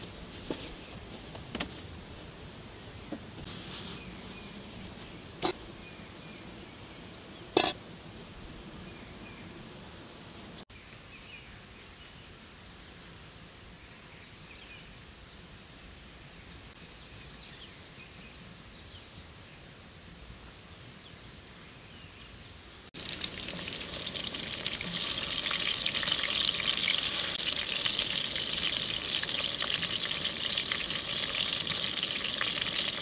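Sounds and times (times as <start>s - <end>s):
food sizzling in hot oil: 23.0s - 33.0s.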